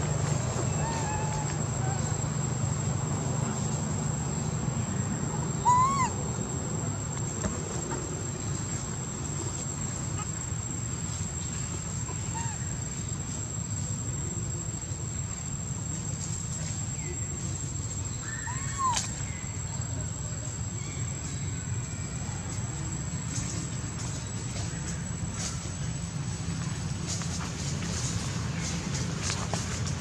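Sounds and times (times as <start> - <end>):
low outdoor rumble: 0.0 - 30.0
macaque squeaking: 0.6 - 2.1, 5.6 - 6.2.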